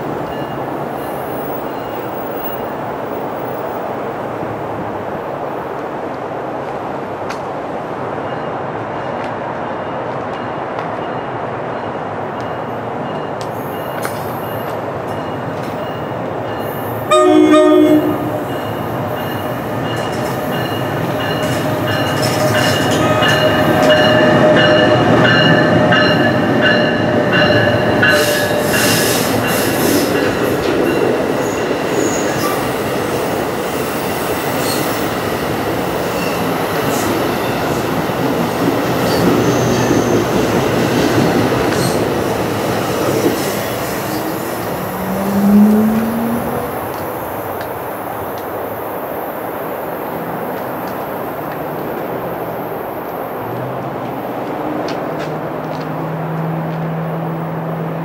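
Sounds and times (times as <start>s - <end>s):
train cars rumbling and clattering: 0.0s - 58.0s
train horn blast: 17.1s - 18.8s, 44.7s - 46.7s.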